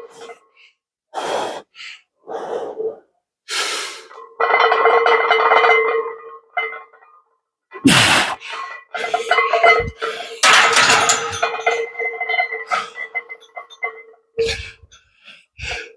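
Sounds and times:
man breathing hard: 0.5s - 4.2s, 14.4s - 15.9s.

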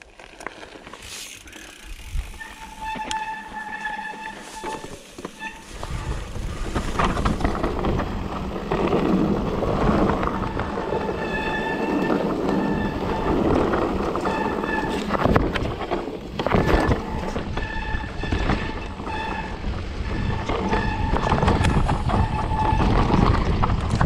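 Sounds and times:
bike rattling over ground: 0.0s - 24.0s
bike tyres on rough trail: 0.0s - 24.0s
high-pitched buzz from bike: 0.9s - 7.5s
wind on microphone: 1.8s - 3.0s, 5.6s - 24.0s.

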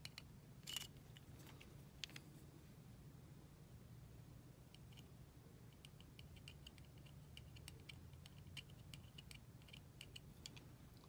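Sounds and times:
small metal parts clicking: 0.0s - 2.2s, 5.7s - 10.7s
low steady hum: 0.0s - 11.0s.

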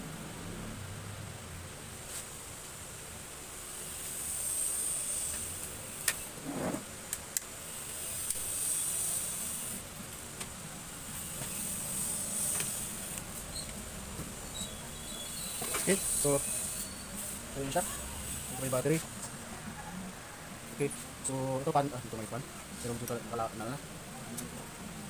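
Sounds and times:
high hiss: 0.0s - 19.4s
plastic scrape: 6.3s - 6.9s.

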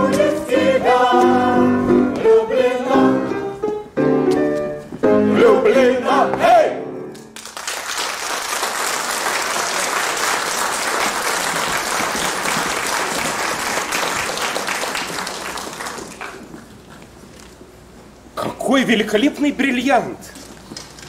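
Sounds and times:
audience applauding: 7.4s - 16.6s.

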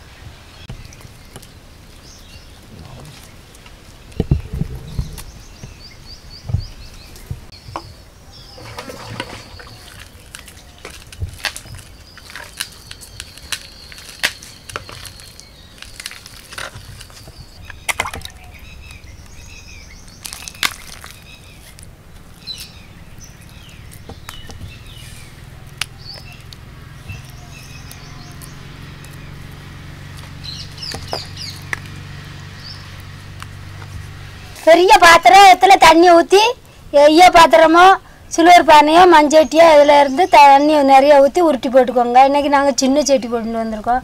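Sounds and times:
birds chirping: 0.0s - 44.0s
wet dough squelching: 8.8s - 19.4s, 20.1s - 22.7s.

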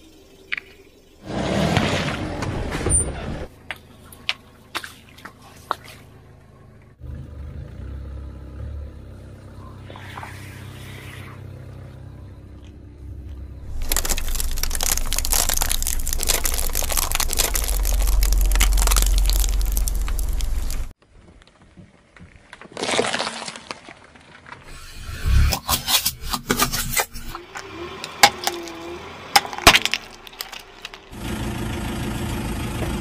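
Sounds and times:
car tyre rumbling on asphalt: 1.2s - 22.7s, 26.5s - 33.0s
tyre crushing foil packet: 13.7s - 20.9s, 22.6s - 24.7s, 29.4s - 31.1s.

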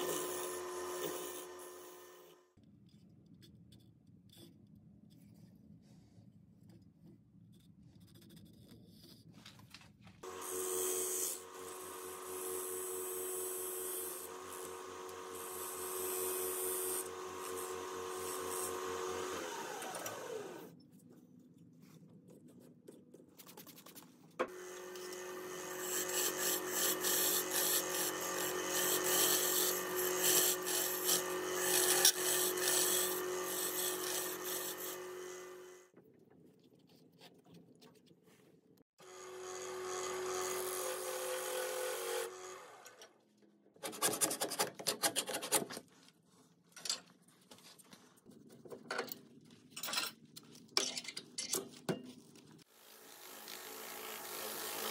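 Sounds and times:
tool cutting inside tube: 0.0s - 4.6s, 10.2s - 20.8s, 24.4s - 35.9s, 39.0s - 43.2s, 43.8s - 45.9s, 52.6s - 54.9s
wood lathe motor humming: 10.3s - 20.7s, 24.5s - 35.8s, 39.0s - 43.0s
tool scraping wood: 24.9s - 35.7s.

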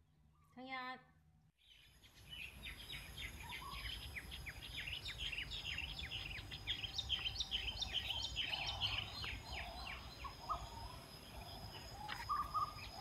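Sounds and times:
small birds chirping: 1.6s - 13.0s
thin steady high tone: 3.4s - 13.0s.

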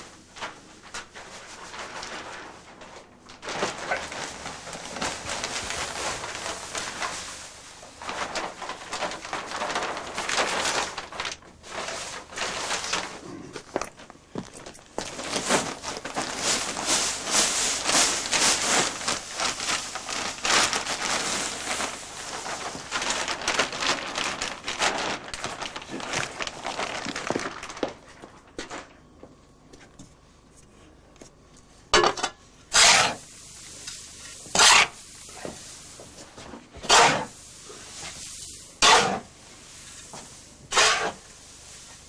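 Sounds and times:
paper rustling: 0.0s - 30.2s
tobacco pouring crackling hiss: 14.9s - 28.1s, 32.7s - 42.0s
shovel scraping into heap: 32.7s - 33.3s, 34.4s - 35.0s, 36.8s - 37.4s, 38.0s - 39.3s, 40.7s - 41.2s.

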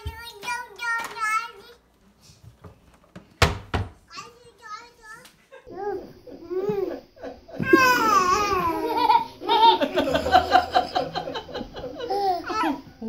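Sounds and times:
baby giggling: 5.6s - 13.0s.

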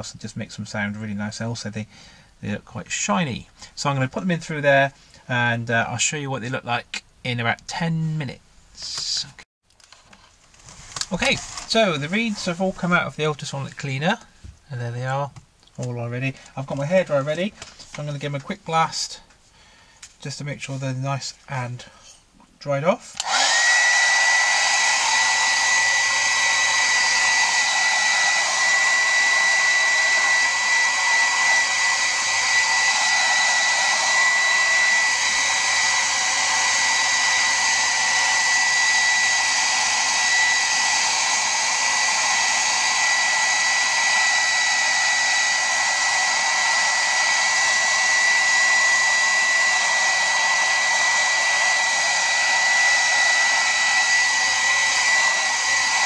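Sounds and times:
hairdryer running: 11.2s - 12.6s, 23.2s - 56.0s.

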